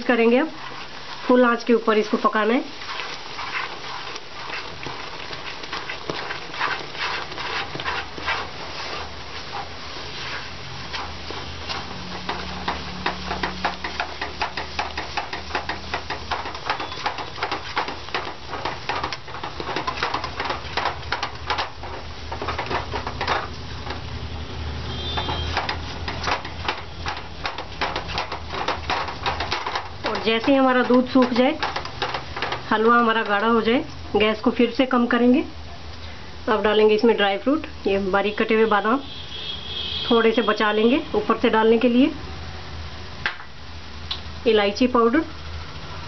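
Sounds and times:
spatula scraping and knocking a pan: 0.0s - 34.7s.

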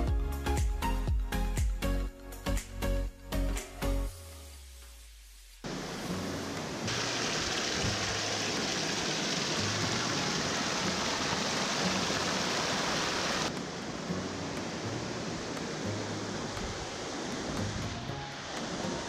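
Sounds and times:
river water rushing over rocks: 5.7s - 19.0s.

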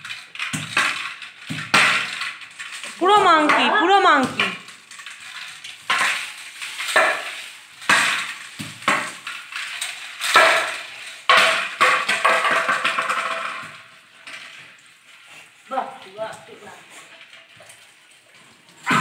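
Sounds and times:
plastic toy knocking on tiled floor: 10.3s - 13.8s.

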